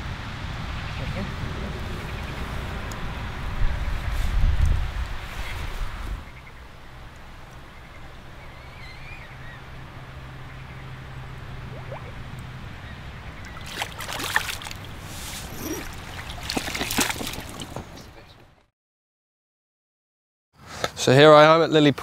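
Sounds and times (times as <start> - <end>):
water splashing and sloshing: 11.2 - 18.3.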